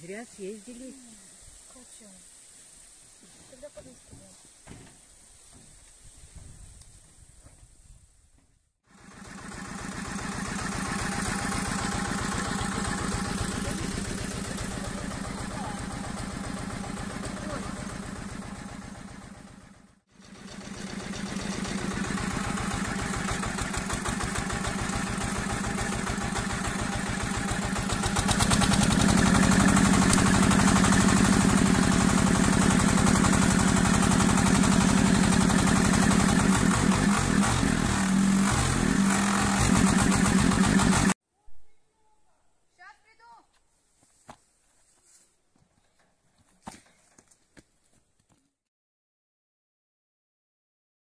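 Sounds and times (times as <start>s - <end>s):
tractor engine running: 8.9s - 41.2s.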